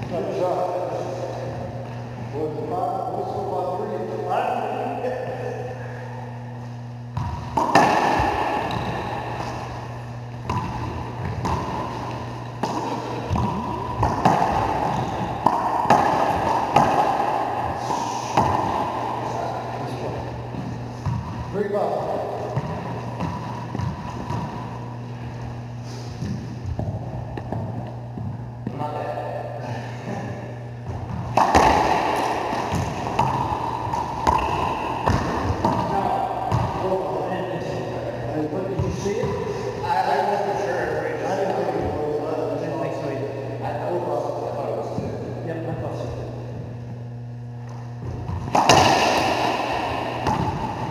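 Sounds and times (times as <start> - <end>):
steady low hum: 0.0 - 50.9
racquetball smacks with echo: 7.1 - 21.6, 22.2 - 25.0, 26.1 - 29.4, 30.8 - 37.4, 47.6 - 50.9.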